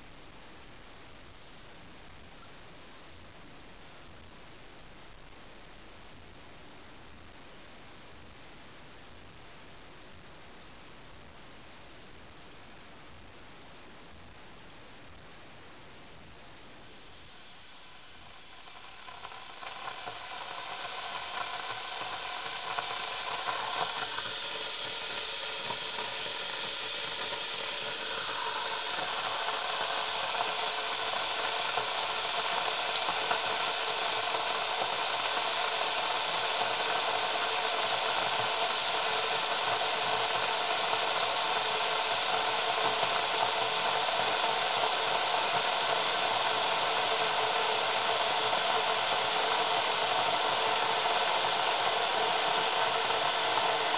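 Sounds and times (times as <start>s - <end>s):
electric coffee pot hissing: 16.6s - 53.9s.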